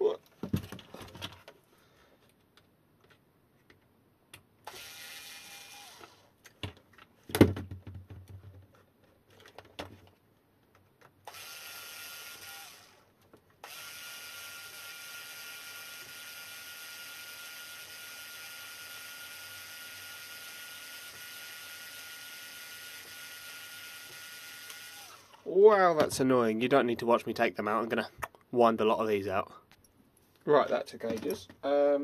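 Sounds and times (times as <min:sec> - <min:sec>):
cordless screwdriver whining: 0:04.6 - 0:06.3, 0:11.2 - 0:25.5.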